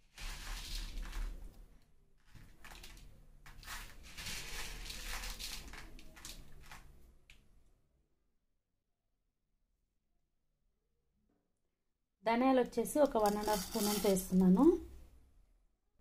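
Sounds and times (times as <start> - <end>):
spices and lentils rustling in pan: 0.0 - 7.0, 13.0 - 14.8.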